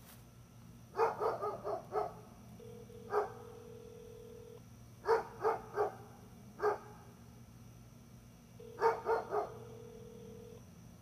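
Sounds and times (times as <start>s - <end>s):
dog barking: 1.0s - 2.2s, 3.1s - 3.5s, 5.0s - 7.0s, 8.8s - 9.7s.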